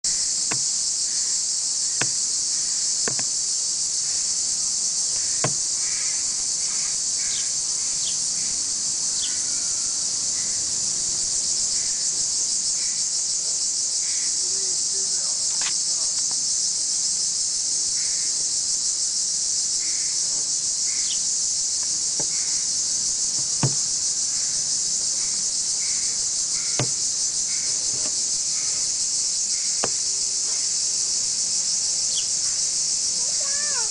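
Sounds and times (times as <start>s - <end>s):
high-pitched insect chorus: 0.0s - 33.9s
sharp knocks: 0.5s - 0.7s, 2.0s - 2.2s, 3.0s - 3.3s, 5.2s - 5.8s, 23.4s - 24.0s, 26.6s - 28.2s, 29.8s - 30.1s.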